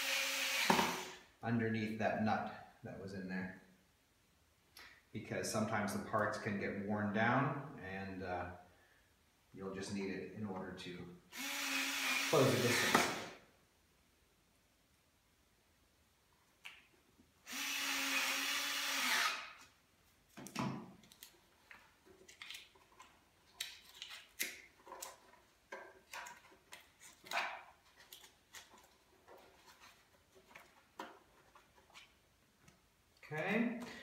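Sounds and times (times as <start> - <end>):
loud steady hiss: 11.4 - 13.4.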